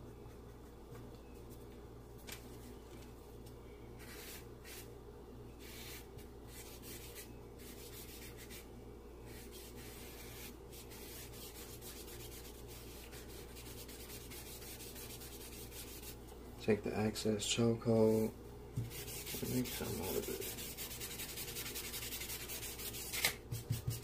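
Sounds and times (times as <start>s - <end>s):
charcoal rubbing on paper: 4.0s - 4.9s, 5.6s - 8.7s, 9.3s - 16.2s, 18.8s - 24.0s.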